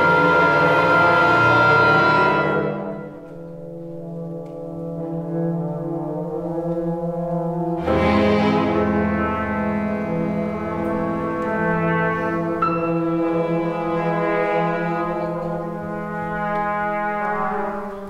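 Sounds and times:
orchestra chord with brass: 0.0 - 3.2, 7.8 - 18.0
soft low held chord: 0.0 - 18.0.

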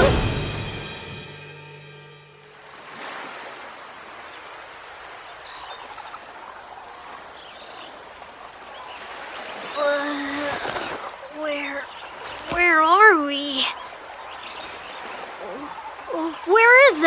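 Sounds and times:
ocean waves on beach: 2.4 - 17.0.

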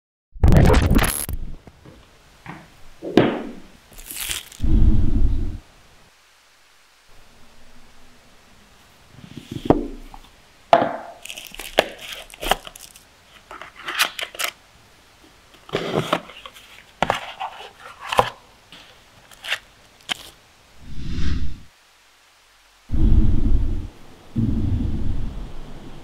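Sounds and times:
tab tearing: 0.6 - 1.4, 4.0 - 4.6, 11.2 - 14.6, 19.3 - 20.4
cardboard and paper unpacking: 3.9 - 4.6, 11.2 - 14.6, 15.6 - 20.4.

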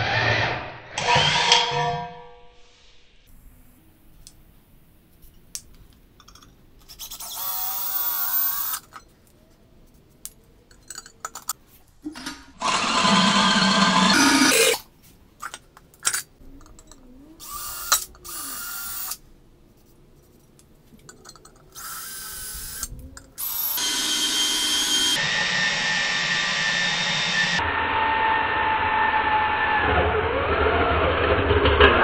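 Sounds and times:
cordless drill boring into metal: 7.1 - 8.8, 12.6 - 14.8, 17.4 - 19.2, 21.8 - 25.4.

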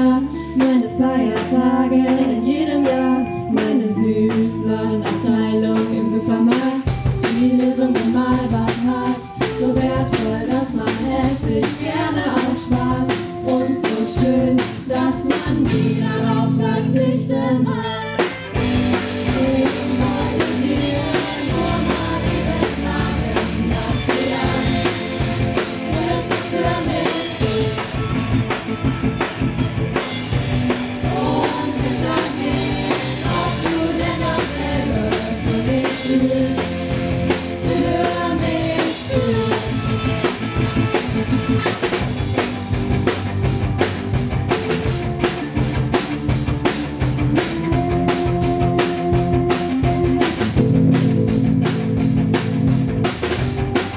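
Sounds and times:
women singing: 0.0 - 18.3, 19.0 - 28.0, 30.8 - 40.1
electric guitar: 0.0 - 53.9
keyboard: 0.0 - 53.9
drum beat: 18.6 - 53.9.

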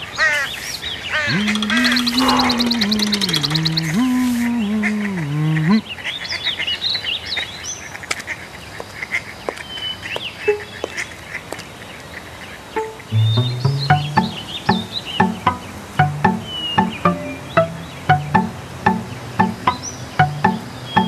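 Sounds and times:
birds chirping and twittering: 0.0 - 21.0
low wavering whimpering cry: 1.3 - 5.8
low voice: 1.3 - 5.9.

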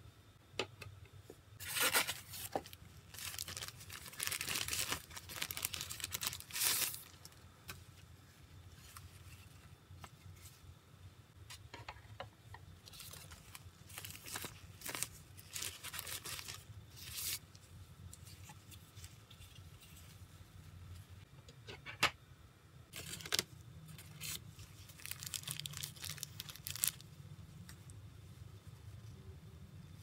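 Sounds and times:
faint low hum: 0.0 - 30.0
paper and plastic rustling: 1.6 - 7.9, 12.8 - 17.6, 22.9 - 27.0.

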